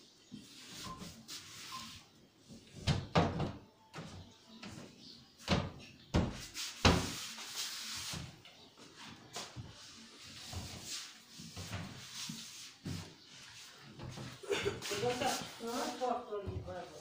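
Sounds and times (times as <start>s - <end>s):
cabinet doors opening and shutting: 2.7s - 4.8s, 5.4s - 7.1s
wooden knocks of doors closing: 2.8s - 4.8s, 5.4s - 7.1s.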